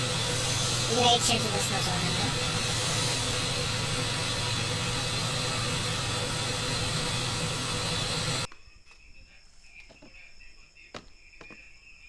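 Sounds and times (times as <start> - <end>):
low hum: 0.0 - 8.5
steady hiss: 0.0 - 8.5.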